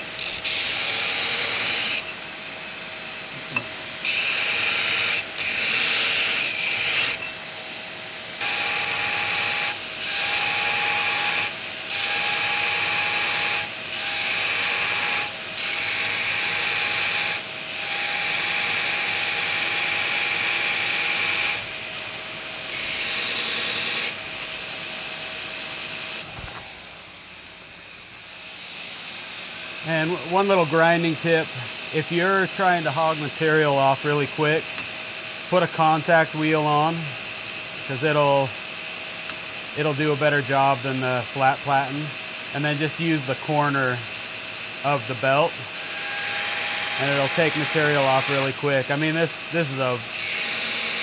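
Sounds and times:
belt grinder grinding steel: 0:00.0 - 0:02.2, 0:03.4 - 0:07.4, 0:22.7 - 0:24.5, 0:44.8 - 0:51.0
grinder running hum: 0:00.0 - 0:51.0.

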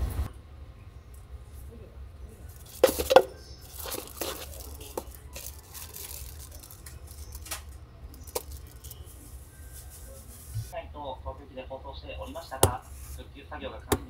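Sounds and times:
packaging rustling and tearing: 0:02.6 - 0:10.7.

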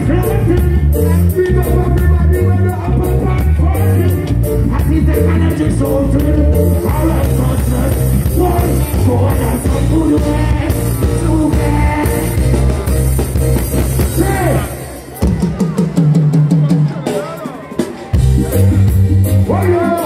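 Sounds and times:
man singing: 0:00.0 - 0:13.4, 0:14.0 - 0:14.9, 0:19.5 - 0:20.0
heavy bass line: 0:00.0 - 0:16.8, 0:18.2 - 0:20.0
live reggae band playing: 0:00.0 - 0:20.0.

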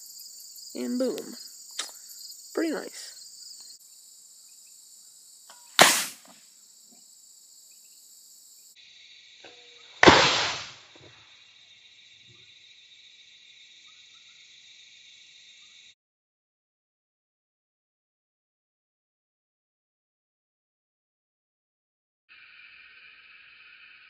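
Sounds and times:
crickets chirring: 0:00.0 - 0:16.0, 0:22.3 - 0:24.0
arrow striking foam target: 0:05.8 - 0:06.4, 0:10.0 - 0:11.1.

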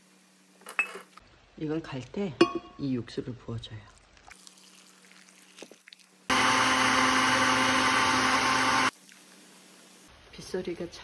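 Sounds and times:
blender running: 0:06.3 - 0:08.9.

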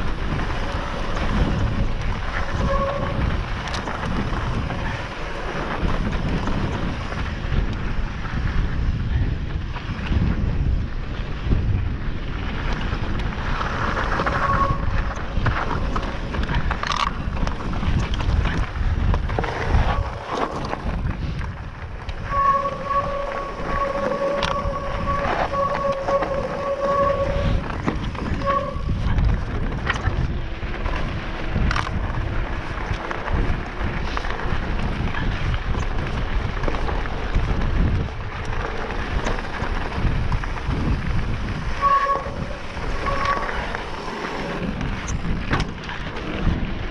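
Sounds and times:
bike rattling over stones: 0:00.0 - 0:46.9
tyres rumbling on gravel: 0:00.0 - 0:46.9
wind noise: 0:00.0 - 0:46.9
disc brakes squealing: 0:00.7 - 0:03.9, 0:14.2 - 0:16.0, 0:22.2 - 0:29.2, 0:41.5 - 0:45.3.

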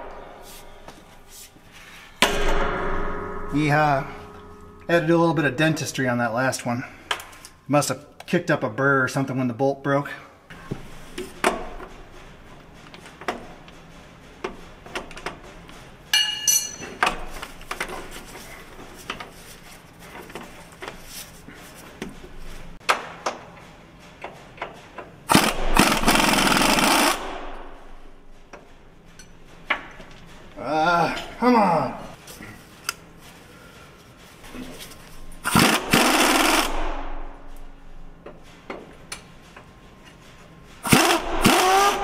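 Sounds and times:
pneumatic air wrench rattling: 0:25.3 - 0:28.1, 0:35.3 - 0:37.7, 0:40.8 - 0:42.0.

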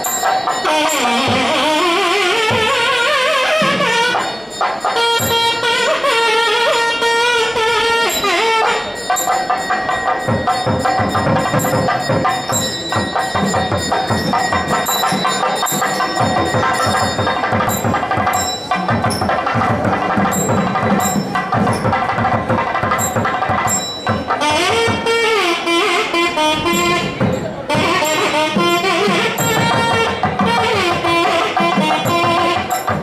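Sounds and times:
bells struck rapidly: 0:00.0 - 0:33.0
held melodic line: 0:00.0 - 0:33.0
rapid drumming: 0:08.4 - 0:33.0.

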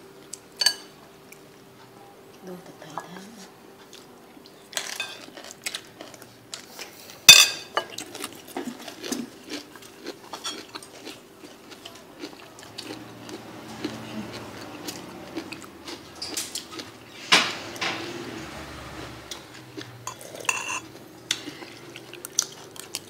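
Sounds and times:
faint steady hum: 0:00.0 - 0:18.0
spoon scraping ceramic plate: 0:20.1 - 0:20.9.

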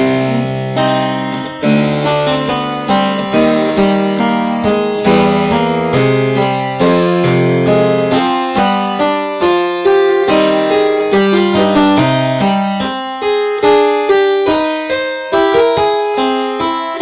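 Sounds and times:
harpsichord playing: 0:00.0 - 0:17.0.

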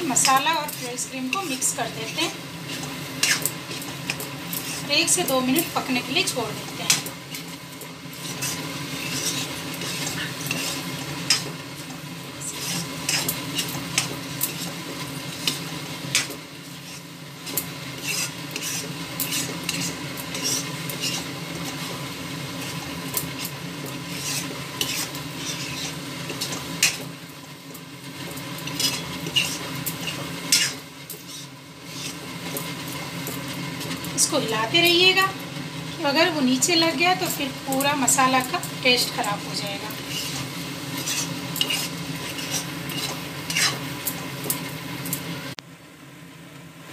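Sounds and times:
spatula scraping metal pan: 0:00.0 - 0:27.1, 0:28.3 - 0:32.7, 0:39.0 - 0:44.2
gravy sizzling softly: 0:00.0 - 0:46.9.

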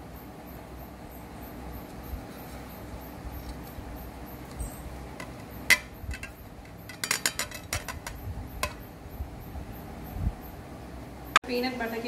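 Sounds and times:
crockery clinking: 0:05.2 - 0:08.8
plate knock: 0:05.2 - 0:08.8.

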